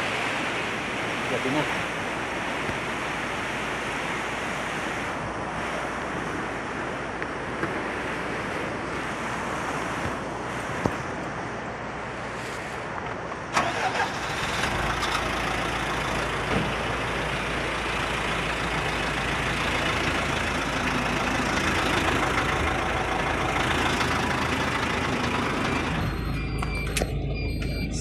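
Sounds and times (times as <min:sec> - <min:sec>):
steady rushing noise: 0:00.0 - 0:13.6
vehicle engine idling: 0:13.5 - 0:28.0.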